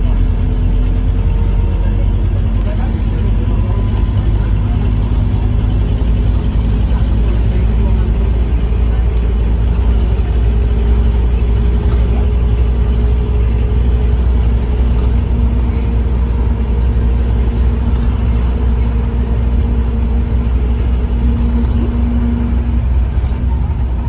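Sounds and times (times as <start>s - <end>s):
bus engine low rumble: 0.0s - 24.0s.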